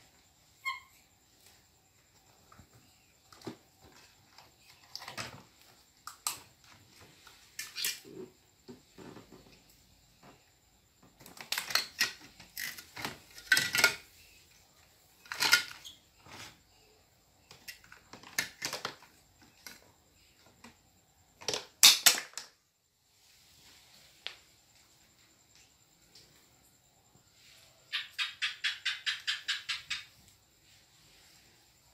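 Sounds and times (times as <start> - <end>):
plastic toys clacking and rattling: 3.8 - 6.5, 11.2 - 14.2, 15.2 - 15.8, 17.5 - 19.9, 21.4 - 22.6.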